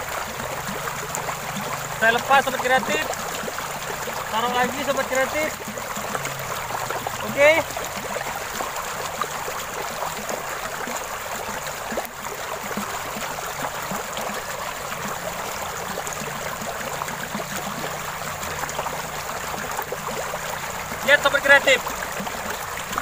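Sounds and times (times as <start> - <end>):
stream water rushing: 0.0 - 23.0.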